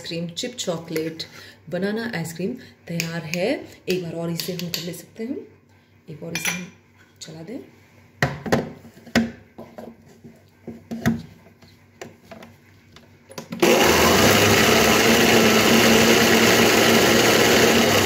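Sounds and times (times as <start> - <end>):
mixer grinder running: 13.6 - 18.0.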